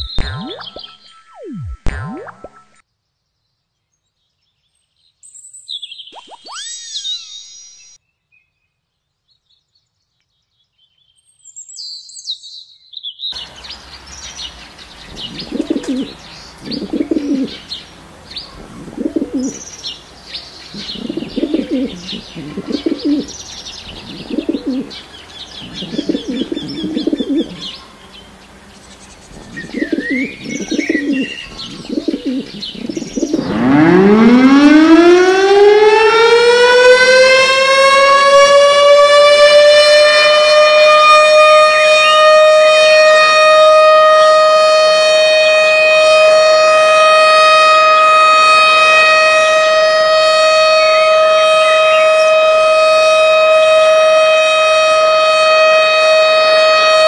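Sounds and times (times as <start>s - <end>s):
high bird chirps: 0.0s - 2.8s, 5.2s - 8.0s, 11.2s - 34.1s
siren wailing: 0.0s - 2.8s, 6.2s - 8.0s, 15.2s - 17.7s, 18.6s - 19.6s, 20.8s - 23.3s, 23.9s - 27.8s, 29.4s - 57.0s
doves cooing: 15.1s - 17.7s, 18.5s - 19.7s, 20.7s - 33.8s.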